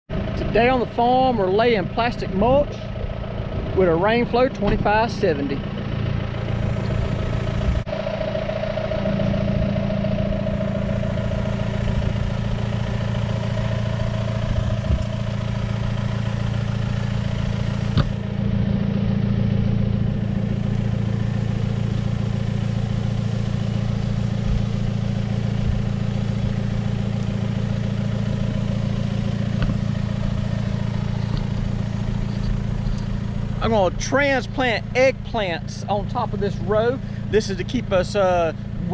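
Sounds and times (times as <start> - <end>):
tractor engine running: 0.1 - 38.9.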